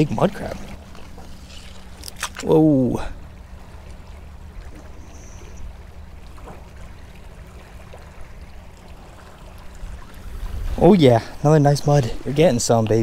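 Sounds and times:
steady low rumble: 0.0s - 13.0s
clicks and squelches in wet mud: 1.5s - 2.5s.

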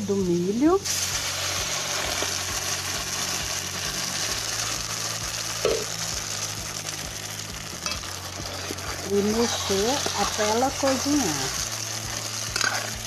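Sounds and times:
batter sizzling in a pan: 0.2s - 13.0s.

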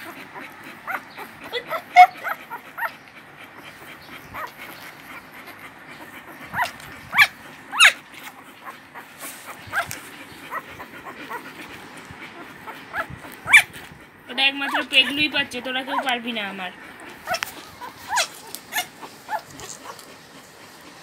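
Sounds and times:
puppies squeaking and whimpering: 0.0s - 21.0s.

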